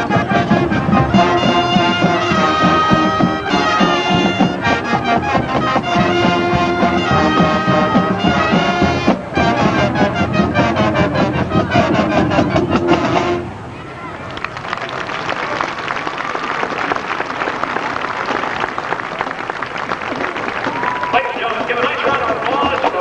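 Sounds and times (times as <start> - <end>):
brass chords: 0.0 - 13.7
drumline strokes: 0.0 - 13.7, 14.5 - 23.0.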